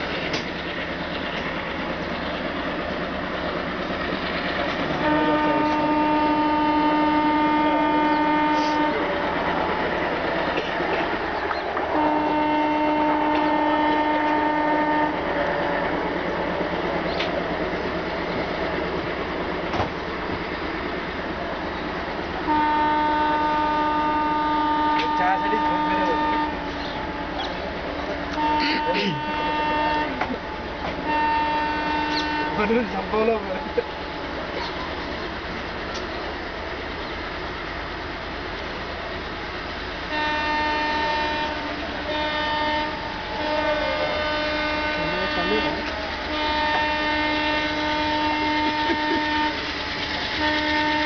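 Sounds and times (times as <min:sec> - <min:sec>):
diesel locomotive engine chugging: 0:00.0 - 0:51.0
locomotive horn blast: 0:04.8 - 0:09.6, 0:11.9 - 0:16.2, 0:22.4 - 0:27.6, 0:28.2 - 0:33.8, 0:40.0 - 0:51.0.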